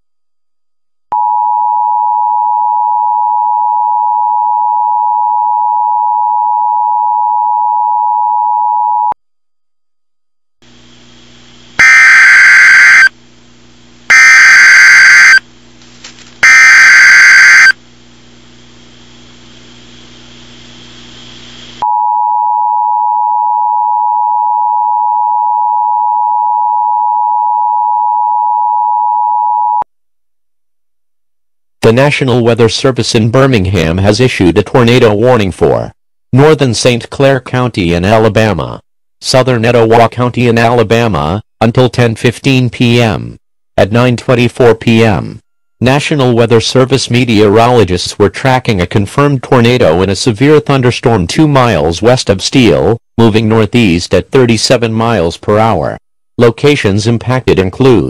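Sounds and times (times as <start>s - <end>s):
harsh data bursts: 10.9s - 13.1s, 14.1s - 15.4s, 16.4s - 17.8s.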